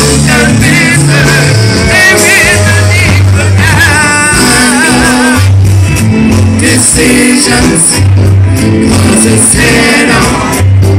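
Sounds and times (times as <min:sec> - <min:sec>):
person singing with vibrato: 0:00.0 - 0:05.8
drums with cymbals: 0:00.0 - 0:10.9
electric bass: 0:00.0 - 0:10.9
keyboard: 0:00.0 - 0:10.9.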